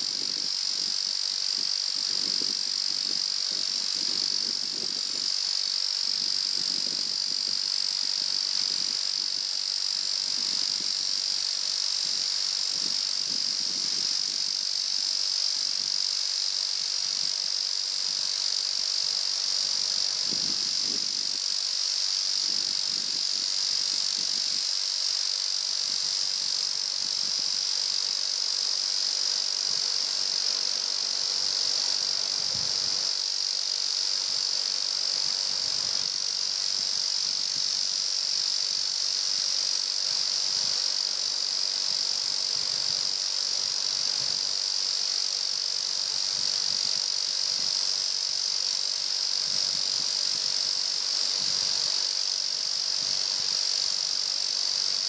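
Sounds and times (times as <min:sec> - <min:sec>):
insects chorus: 0:00.0 - 0:55.0.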